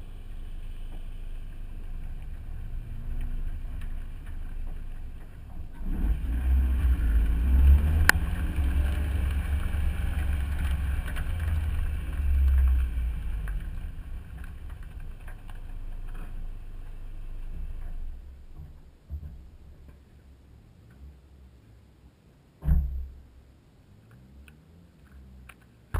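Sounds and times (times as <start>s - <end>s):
car engine accelerating: 0.0s - 18.6s
wind and road rumble: 0.0s - 25.9s.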